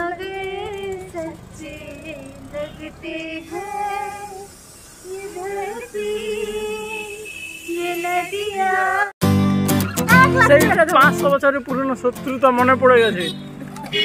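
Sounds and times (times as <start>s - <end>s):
woman singing slow melody: 0.0s - 9.2s.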